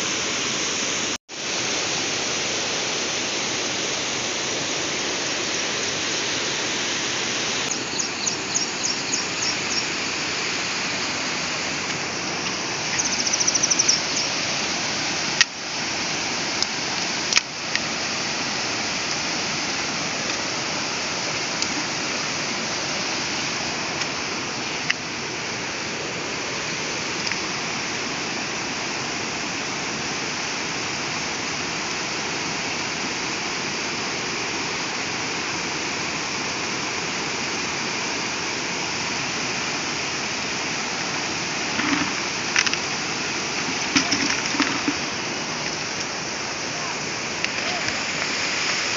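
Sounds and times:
stream water rushing: 0.0s - 48.9s
high chirps: 7.7s - 10.0s, 12.9s - 14.4s.

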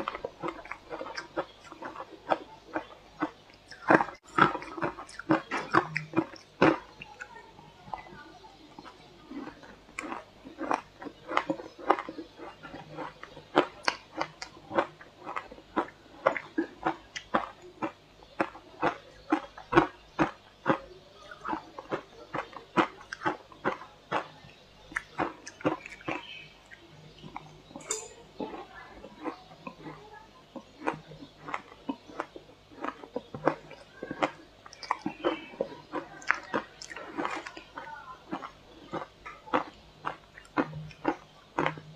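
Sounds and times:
crunching shaved ice in mouth: 8.8s - 27.5s, 28.4s - 41.9s.

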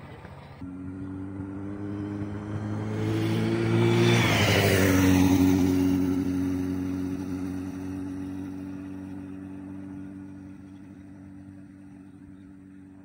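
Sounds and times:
motorcycle passing by: 0.0s - 13.0s.

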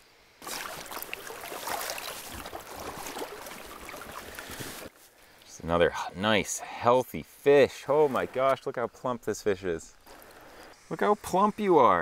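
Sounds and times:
stream current rushing: 0.4s - 4.9s
water splashing and dripping: 0.4s - 4.9s.

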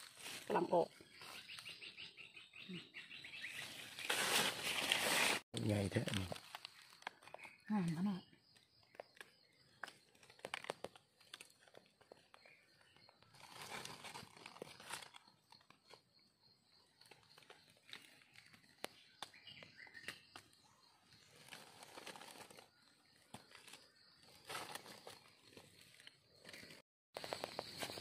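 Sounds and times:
dry leaves rustling and crackling: 0.0s - 1.4s, 3.7s - 5.4s, 13.4s - 15.2s, 21.4s - 22.7s.

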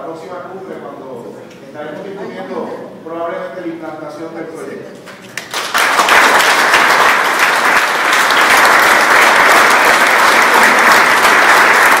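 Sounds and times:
audience applauding: 5.2s - 12.0s.

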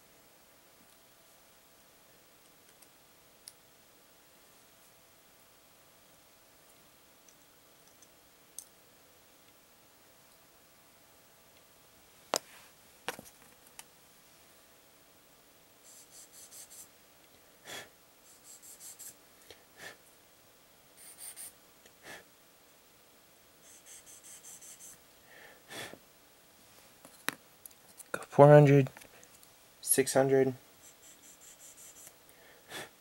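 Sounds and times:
rhythmic scraping strokes: 30.8s - 32.1s.

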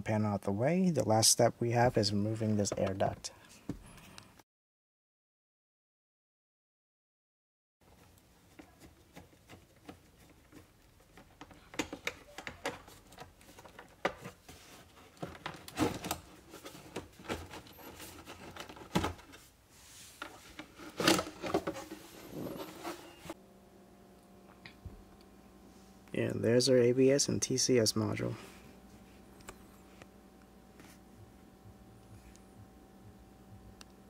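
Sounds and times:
plastic rubbing and scraping: 8.0s - 19.5s, 20.1s - 23.4s.

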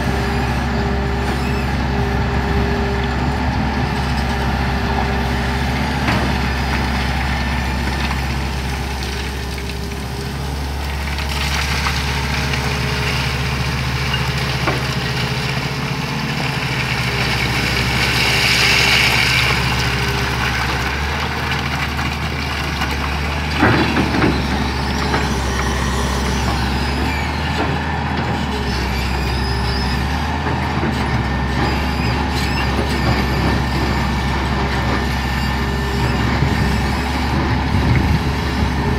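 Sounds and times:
excavator diesel engine running: 0.0s - 38.9s
rock pouring from bucket: 6.6s - 25.4s.

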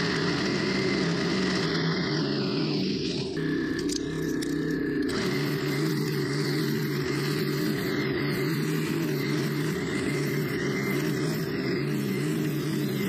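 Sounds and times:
string trimmer engine running: 0.0s - 13.0s
trimmer line cutting grass: 0.0s - 13.0s.

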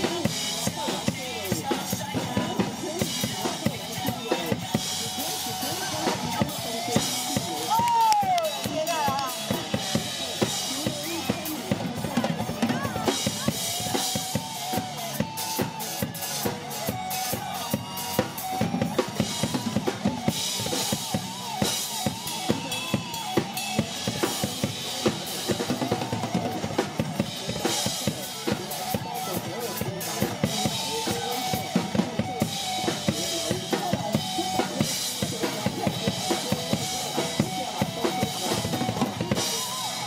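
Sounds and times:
pop-rock backing song: 0.0s - 7.8s
drum kit playing: 0.0s - 40.0s.

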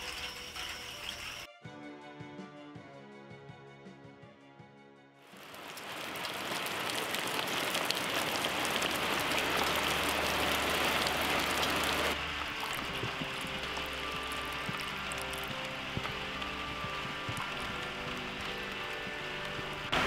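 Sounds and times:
rain: 0.0s - 1.5s, 5.3s - 20.0s
gutter runoff splashing: 5.4s - 20.0s.

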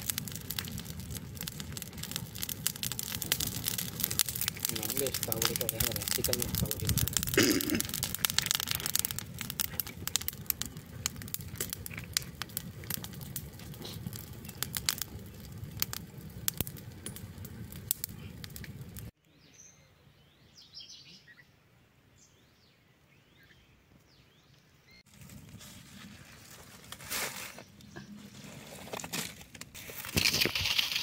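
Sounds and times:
wood fire crackling: 0.0s - 19.2s, 25.1s - 31.0s
bird chirps: 19.2s - 21.6s.

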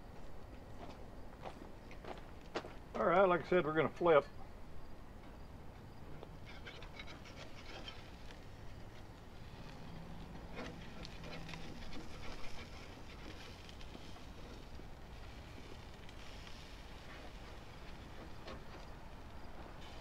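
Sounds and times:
metal utensils scraping grill grate: 6.4s - 8.6s, 10.4s - 18.9s.

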